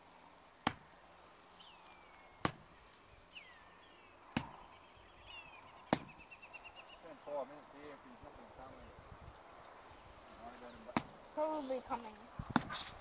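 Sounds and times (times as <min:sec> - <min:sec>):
sharp slaps: 0:00.6 - 0:00.9, 0:02.4 - 0:02.7, 0:04.3 - 0:04.6, 0:05.9 - 0:06.2, 0:10.9 - 0:11.2, 0:12.5 - 0:12.9.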